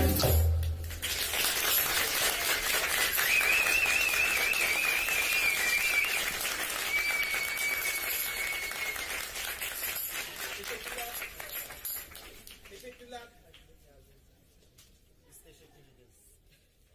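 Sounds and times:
crowd applauding: 0.7s - 13.2s
person whistling: 3.2s - 9.3s.

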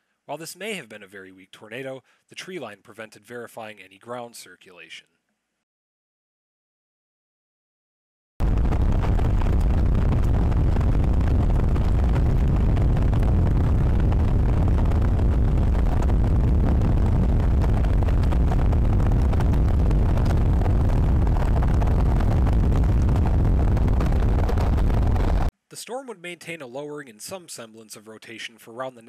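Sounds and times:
wind buffeting the microphone: 8.4s - 25.5s.

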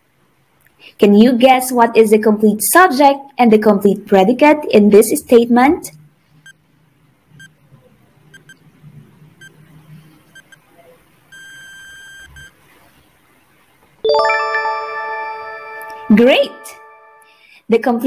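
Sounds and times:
short electronic beeps: 8.3s - 8.6s, 10.4s - 10.6s, 11.3s - 12.5s
bright chime ringing: 14.0s - 17.3s.

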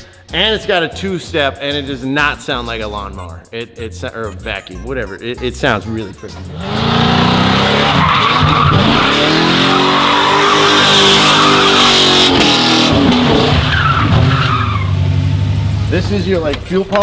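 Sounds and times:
truck engine revving: 6.4s - 16.5s
tyres squealing on asphalt: 6.6s - 15.6s.

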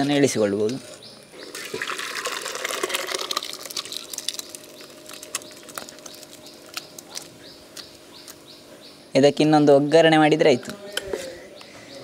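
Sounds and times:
small birds chirping: 0.0s - 2.2s, 3.3s - 12.0s
thick curry pouring into steel vessel: 1.6s - 4.5s.

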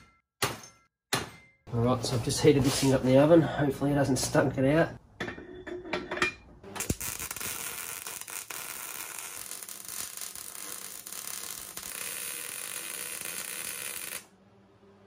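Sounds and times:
welding arc crackling: 6.7s - 14.3s.

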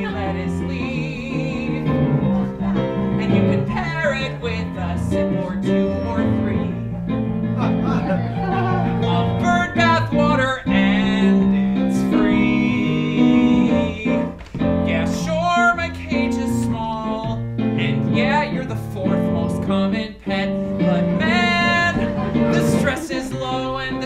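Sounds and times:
musical theatre instrumental: 0.0s - 24.0s.

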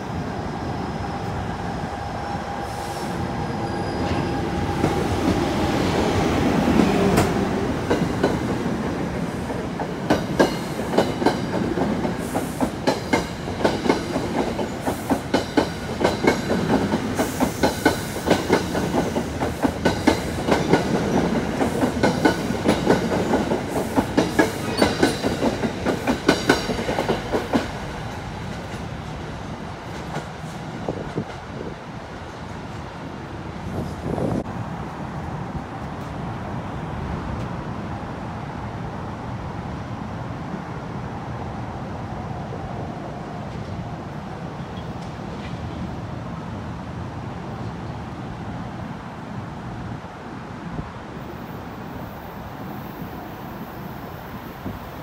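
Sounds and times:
train wheels clickety-clack: 4.0s - 31.7s.

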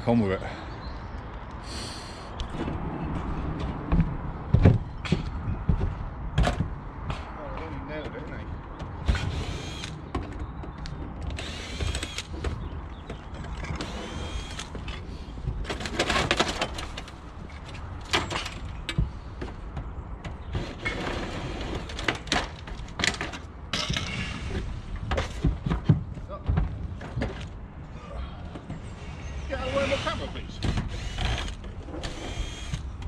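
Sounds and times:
knocks and clatter: 2.5s - 7.3s, 14.5s - 27.6s
cordless drill whining: 29.7s - 32.8s.

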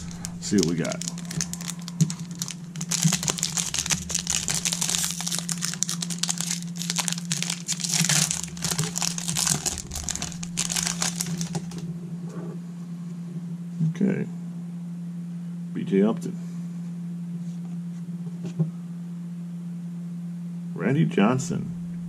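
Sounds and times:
foil wrapper crinkling and tearing: 0.0s - 11.8s.

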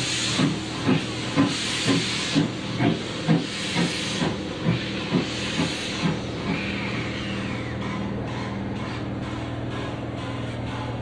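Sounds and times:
steam hissing: 0.0s - 8.5s
steam locomotive chuffing: 0.0s - 11.0s.

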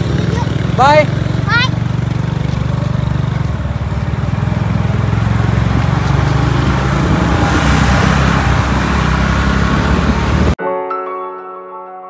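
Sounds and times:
motorbike engine running: 0.0s - 10.6s
road noise: 0.0s - 10.6s
wind noise: 5.3s - 10.6s.

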